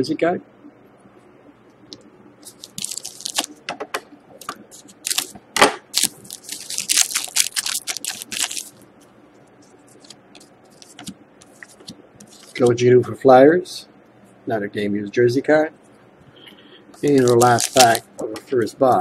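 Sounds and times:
foil wrapper crinkling and tearing: 2.4s - 3.5s, 4.8s - 8.8s, 9.9s - 12.6s, 17.0s - 18.1s.

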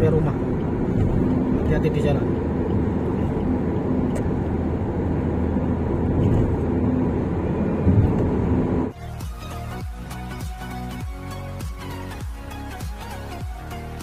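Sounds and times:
car driving rumble inside cabin: 0.0s - 8.9s
music: 8.9s - 14.0s.

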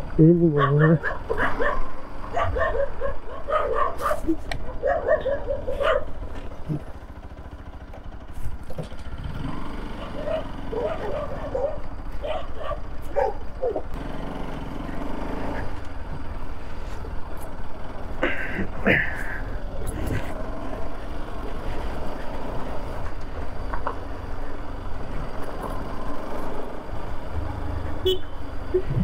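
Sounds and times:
motorcycle engine running: 0.0s - 29.0s
dogs barking: 0.4s - 6.3s, 9.9s - 14.0s.

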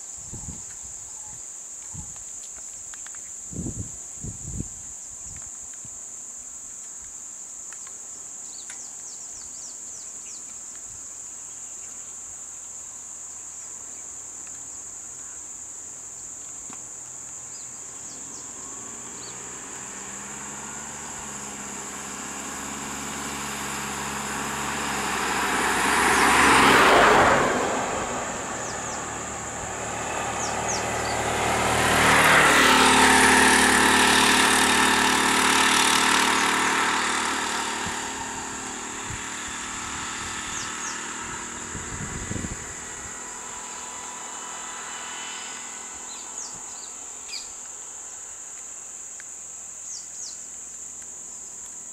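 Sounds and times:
insects buzzing: 0.0s - 51.9s
vehicle engines passing: 16.6s - 51.9s.

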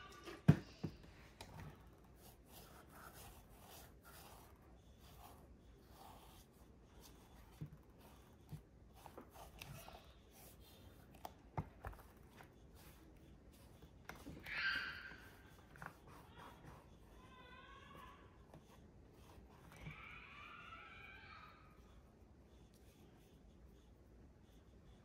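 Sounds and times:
cotton ball rubbing leather: 1.5s - 17.2s.

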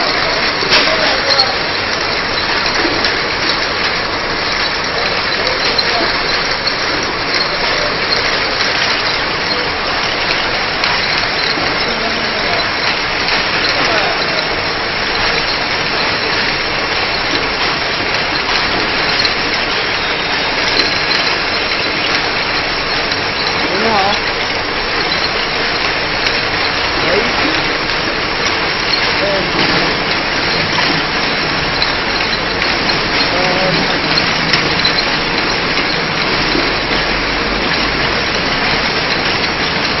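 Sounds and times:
labeling machine running: 0.0s - 40.0s.

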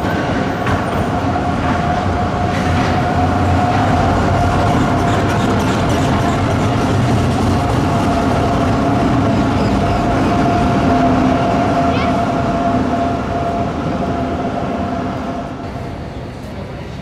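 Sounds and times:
tram rumbling with whine: 0.0s - 17.0s.

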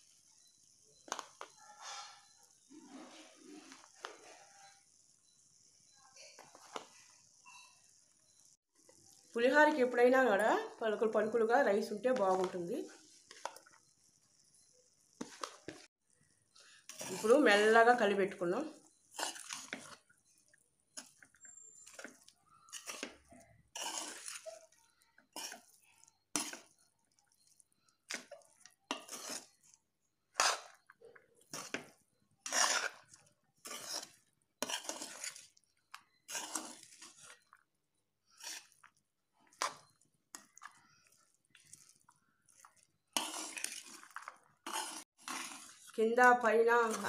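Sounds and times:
metal spatula scraping rice in pan: 0.4s - 4.8s, 16.5s - 17.9s, 19.0s - 37.6s, 38.2s - 47.0s.

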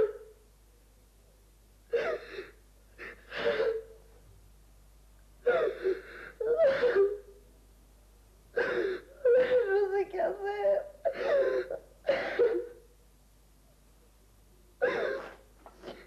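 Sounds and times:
girl sobbing: 0.0s - 0.3s, 1.9s - 4.0s, 5.4s - 7.4s, 8.6s - 12.8s, 14.8s - 15.4s.

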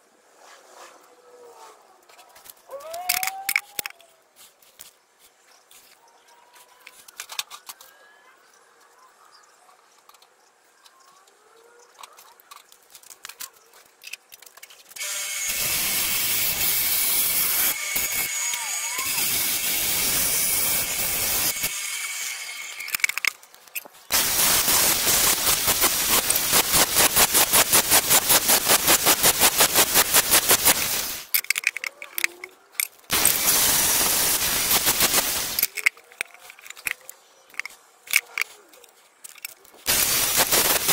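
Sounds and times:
angle grinder grinding metal: 15.0s - 23.4s, 24.1s - 31.3s, 33.1s - 35.9s, 39.8s - 40.9s.

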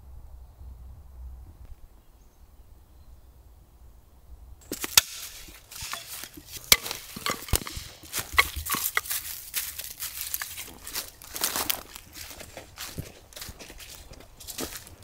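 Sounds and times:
faint low rumble: 0.0s - 4.7s
footsteps on dry leaves and twigs: 4.6s - 15.0s.

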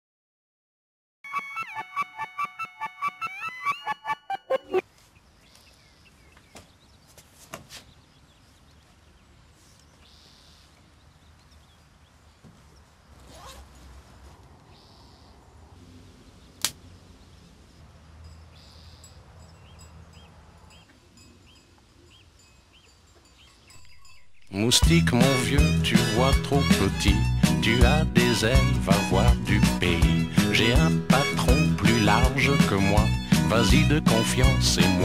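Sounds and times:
faint handling rustles: 4.8s - 14.8s
faint chirps: 17.5s - 24.6s.

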